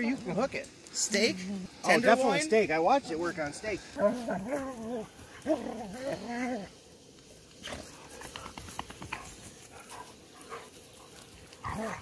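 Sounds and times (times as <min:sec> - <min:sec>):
dogs snuffling and scuffling: 0:03.3 - 0:06.3, 0:07.5 - 0:12.0.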